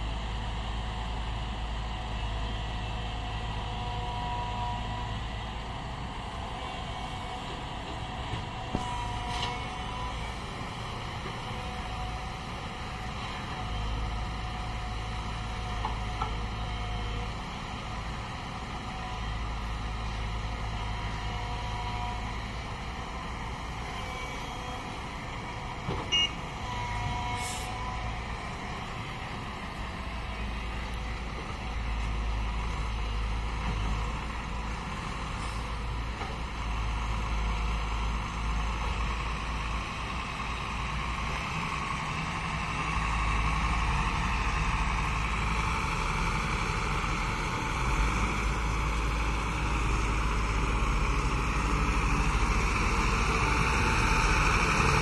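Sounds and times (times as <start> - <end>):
excavator diesel engine rumbling: 0.0 - 55.0
tipper trucks running: 0.0 - 55.0
brief beeping tones: 26.1 - 26.4.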